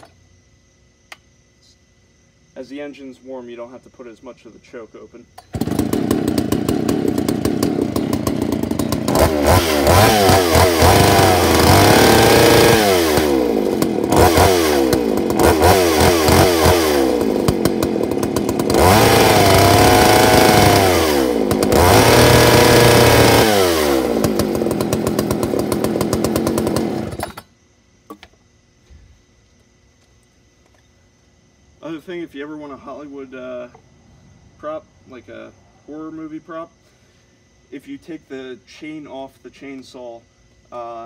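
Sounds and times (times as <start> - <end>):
chainsaw idling and revving: 5.4 - 27.5.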